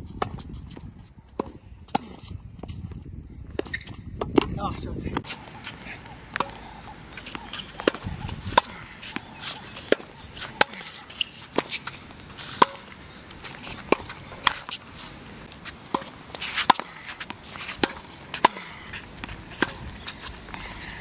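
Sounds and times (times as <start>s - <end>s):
tennis ball hitting racket: 5.2s - 21.0s.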